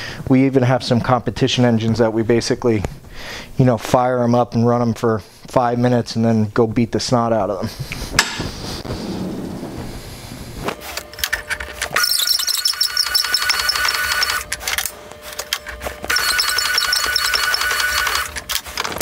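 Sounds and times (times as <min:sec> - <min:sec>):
shrill squeal of metal cutting: 0:12.0 - 0:14.3.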